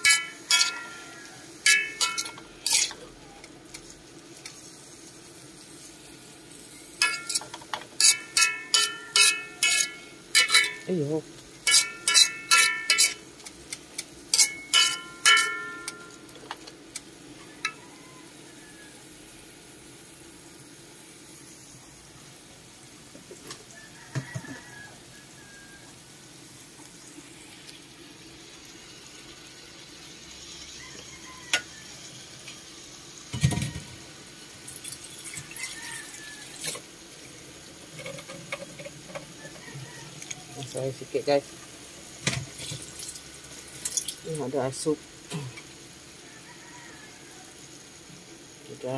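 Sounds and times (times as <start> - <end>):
greens sizzling in a wok: 0.0 - 48.9
metal spatula knocking on wok: 14.4 - 16.1.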